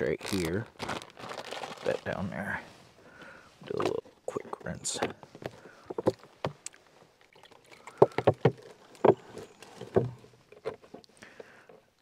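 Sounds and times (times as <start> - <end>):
water sloshing in a cup: 7.2 - 10.0.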